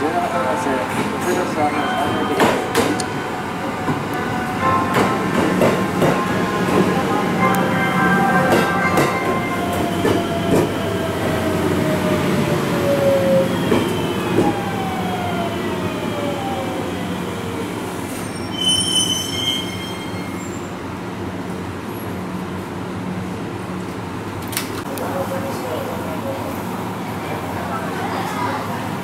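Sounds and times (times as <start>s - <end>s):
high brake squeal: 18.1s - 20.8s.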